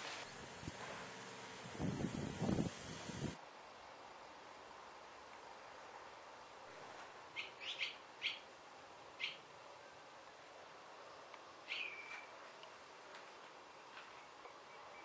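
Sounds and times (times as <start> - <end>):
swallow chirping: 7.4 - 8.4, 11.7 - 12.3.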